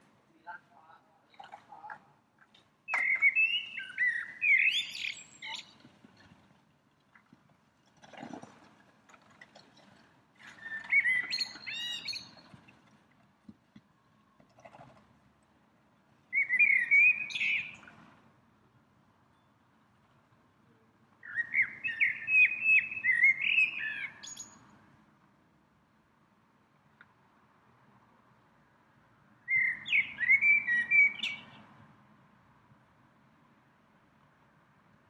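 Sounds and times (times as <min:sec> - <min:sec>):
songbird warbling: 0:02.9 - 0:05.8, 0:10.6 - 0:12.4, 0:16.3 - 0:17.9, 0:21.2 - 0:24.6, 0:29.5 - 0:31.6.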